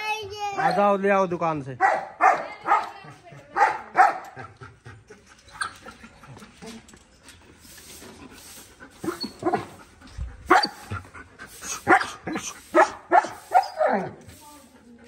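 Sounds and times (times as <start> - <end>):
dogs barking: 0.6 - 1.0, 1.8 - 4.6, 10.4 - 14.2.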